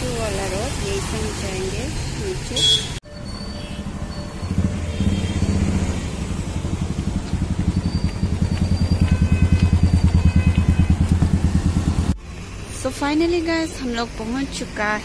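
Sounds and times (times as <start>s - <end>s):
vehicle engine idling: 4.3s - 12.5s.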